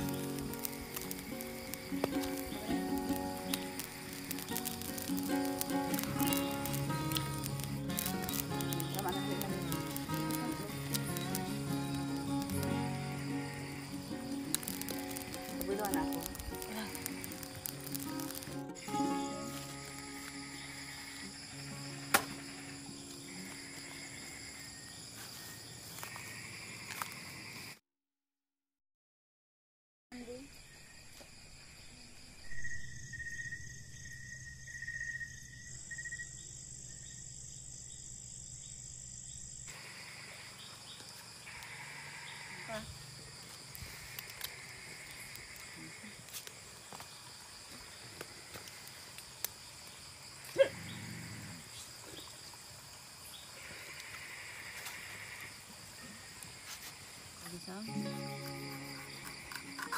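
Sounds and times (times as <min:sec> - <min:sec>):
leaf snapping: 0:00.0 - 0:12.9, 0:13.6 - 0:18.8, 0:22.1 - 0:22.4, 0:43.5 - 0:47.1
leaf rustling and clicks: 0:00.0 - 0:20.4, 0:43.2 - 0:50.1
crickets and insects chirping: 0:00.0 - 0:27.8, 0:30.1 - 0:59.9.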